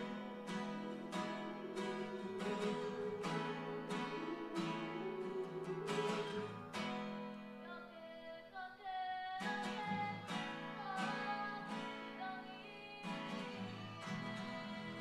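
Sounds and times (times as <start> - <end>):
group singing: 0.0 - 6.7
strummed acoustic guitars: 0.0 - 7.9, 9.3 - 15.0.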